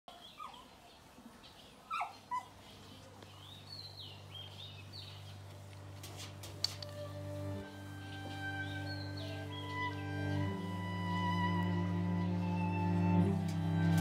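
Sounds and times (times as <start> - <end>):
small dog yelping: 1.9 - 2.5
low steady hum: 2.4 - 14.0.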